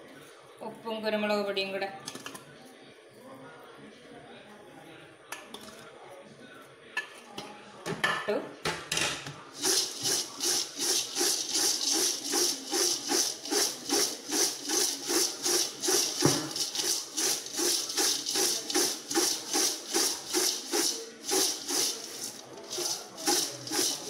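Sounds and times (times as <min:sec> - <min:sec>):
dry snack mix rustling in vessel: 0:09.5 - 0:24.0.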